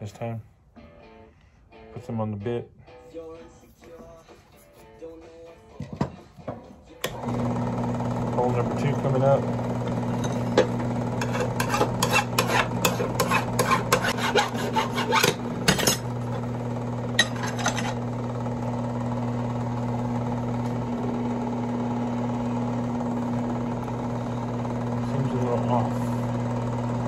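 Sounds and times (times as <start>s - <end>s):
drill press motor humming: 7.0s - 27.0s.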